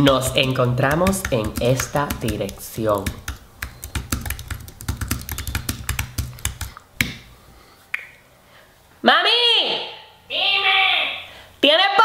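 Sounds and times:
typing on computer keyboard: 0:00.0 - 0:06.8.

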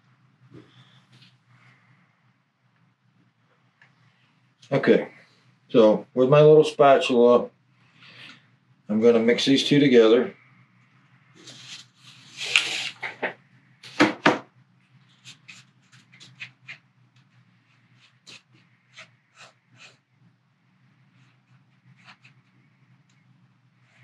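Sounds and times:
low steady hum: 0:00.0 - 0:24.0
spatula scraping on paper plate: 0:15.1 - 0:16.9, 0:17.7 - 0:20.1, 0:21.0 - 0:22.7.

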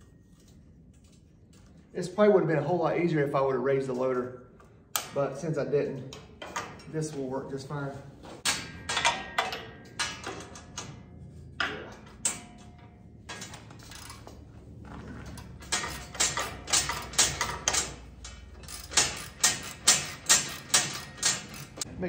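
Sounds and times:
ratchet wrench clicking: 0:13.4 - 0:14.3, 0:15.7 - 0:21.9.

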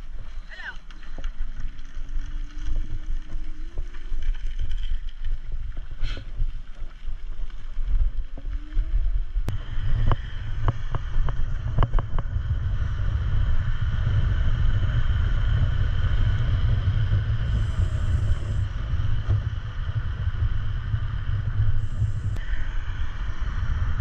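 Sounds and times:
wind buffeting microphone: 0:00.0 - 0:24.0
steady high whine: 0:09.4 - 0:24.0.

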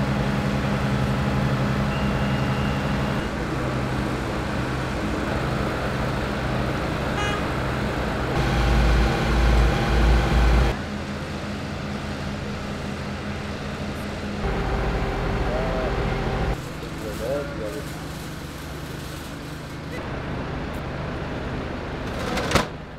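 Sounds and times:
diesel engines and pumps humming: 0:00.0 - 0:22.9.

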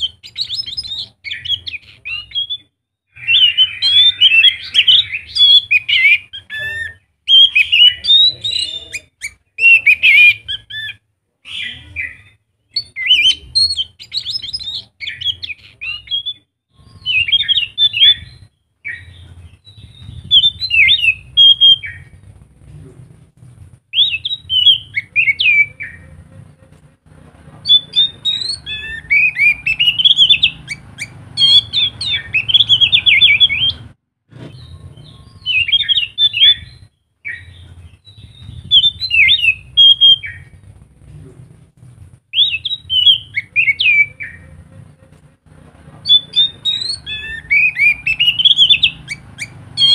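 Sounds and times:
thrush twittering song: 0:12.8 - 0:22.4, 0:27.6 - 0:40.7, 0:46.0 - 0:49.9.

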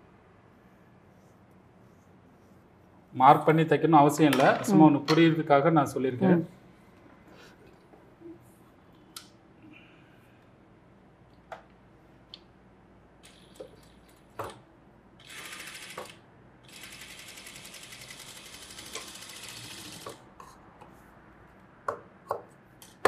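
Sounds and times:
sewing machine stitching: 0:15.2 - 0:20.2
clicks and taps: 0:21.8 - 0:23.0.

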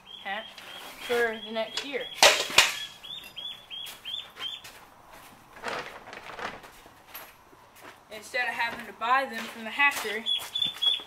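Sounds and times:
ducklings peeping: 0:00.0 - 0:04.7, 0:10.2 - 0:11.0.

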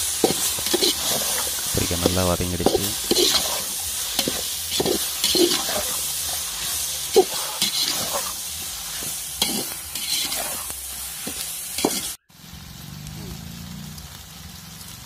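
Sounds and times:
vegetables sizzling in oil: 0:00.0 - 0:15.0
metal spatula scraping a pot: 0:00.1 - 0:01.7, 0:02.6 - 0:12.2.

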